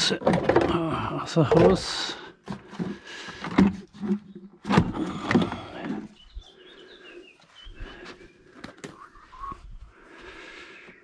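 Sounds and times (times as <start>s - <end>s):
plastic parts knocking and rattling: 0.0s - 6.1s.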